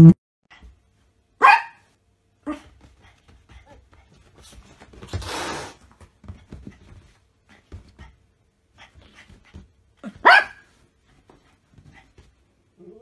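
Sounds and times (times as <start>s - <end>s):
cat hissing: 5.1s - 5.8s.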